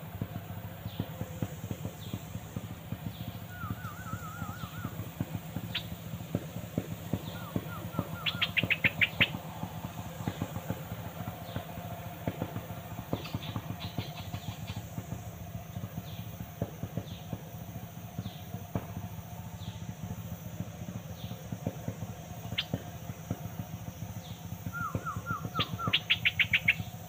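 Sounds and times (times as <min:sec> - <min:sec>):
low motor hum: 0:00.0 - 0:27.0
small birds chirping: 0:00.7 - 0:06.0, 0:07.0 - 0:09.5, 0:13.0 - 0:14.9, 0:22.4 - 0:22.9, 0:24.2 - 0:27.0.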